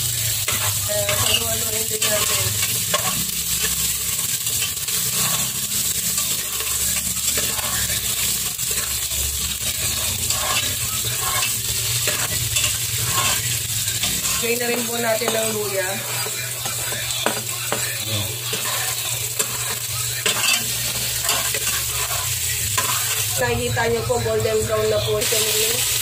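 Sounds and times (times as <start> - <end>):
onions sizzling in oil: 0.0 - 26.0
metal ladle scraping pot: 2.0 - 3.7, 8.6 - 14.6, 15.4 - 23.4.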